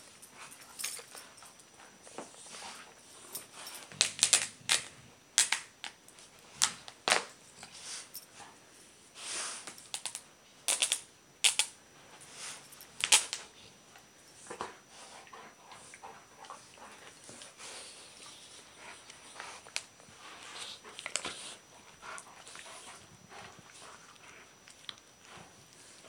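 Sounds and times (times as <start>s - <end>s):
dogs' teeth snapping: 4.0s - 6.0s.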